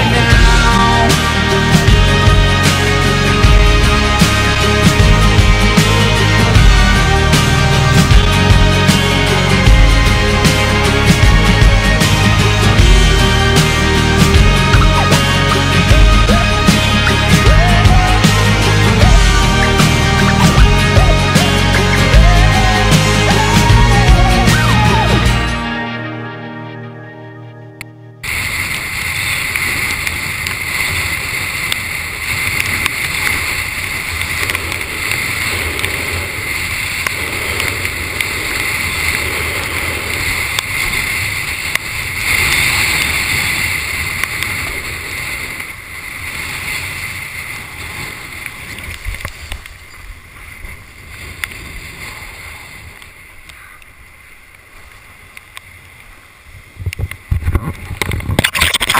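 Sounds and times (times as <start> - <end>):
water rushing past board: 0.0 - 25.6, 28.2 - 58.9
wind buffeting microphone: 28.2 - 58.9.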